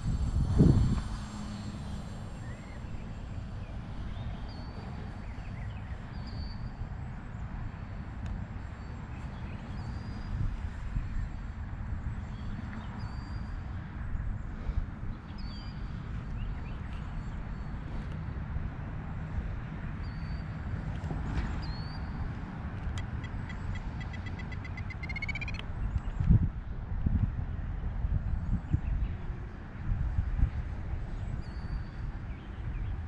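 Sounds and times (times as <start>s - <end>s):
wind buffeting microphone: 0.0s - 6.0s, 20.7s - 33.0s
bird chirping: 23.1s - 26.2s
high clicking notes: 23.2s - 25.6s.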